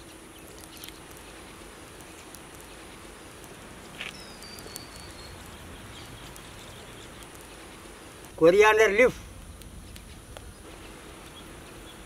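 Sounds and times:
low outdoor hiss: 0.0 - 12.0
faint ticks: 0.4 - 8.4.

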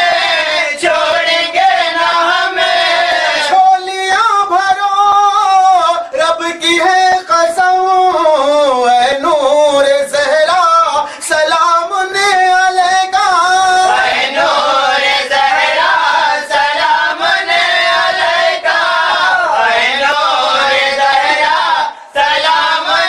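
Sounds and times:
chorus of voices singing: 0.0 - 6.1, 11.0 - 23.0
lead voice singing: 0.0 - 23.0.

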